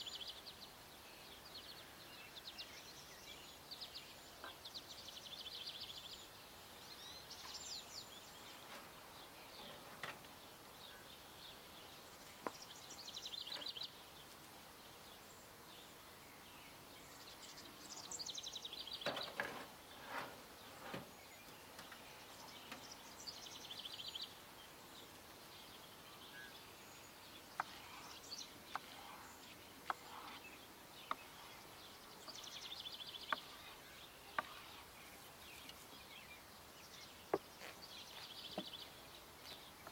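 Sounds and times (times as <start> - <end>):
faint outdoor background: 0.0 - 39.9
songbird singing: 0.0 - 39.9.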